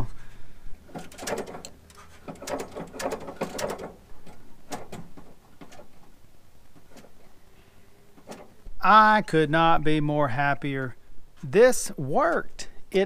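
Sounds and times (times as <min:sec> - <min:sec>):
metal clicking and rattling: 0:00.8 - 0:07.4, 0:08.1 - 0:08.7.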